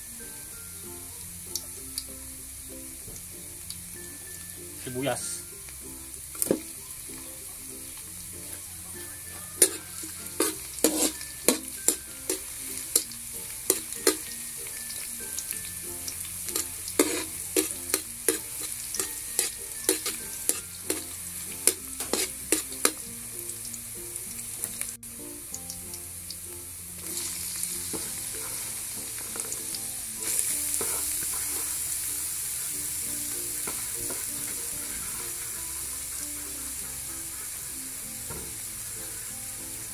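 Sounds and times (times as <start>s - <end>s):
garlic and onion sizzling in oil: 0.0s - 39.9s
spatula scraping a wok: 8.6s - 14.6s, 16.2s - 23.0s, 27.1s - 38.3s.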